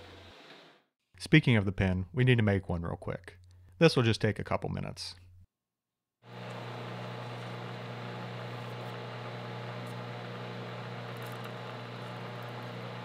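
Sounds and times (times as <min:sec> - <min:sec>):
metal lathe humming: 0:06.3 - 0:13.0.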